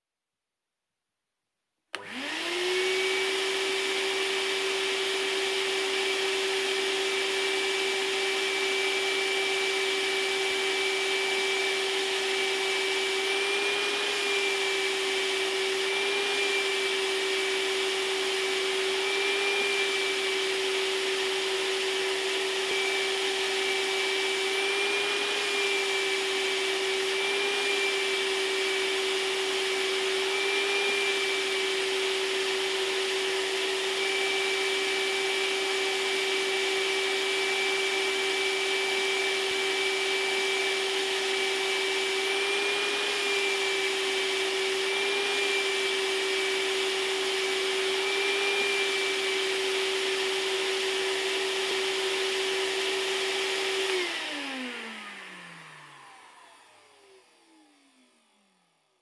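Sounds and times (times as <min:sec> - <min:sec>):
vacuum cleaner motor whine: 0:01.9 - 0:59.0.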